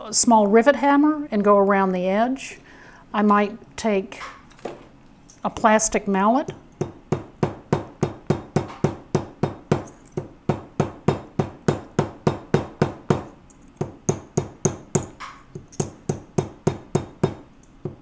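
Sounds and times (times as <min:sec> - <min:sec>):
mallet tapping metal rivet: 0:06.8 - 0:18.0.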